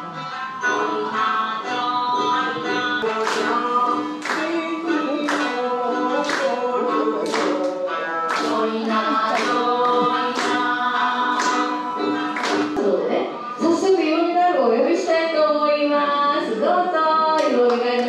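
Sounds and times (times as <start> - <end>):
folk singing with accompaniment: 0.0 - 13.8
sharp clap-like beat: 3.0 - 12.8.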